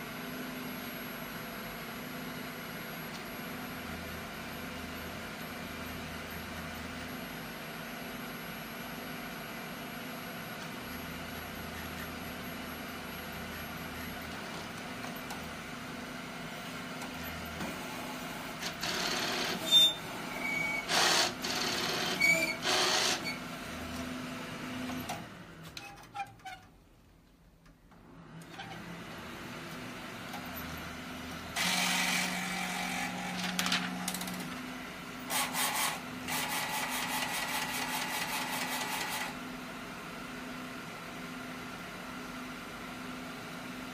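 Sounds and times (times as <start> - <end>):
printer machine hum: 9.4 - 25.6, 28.0 - 41.2.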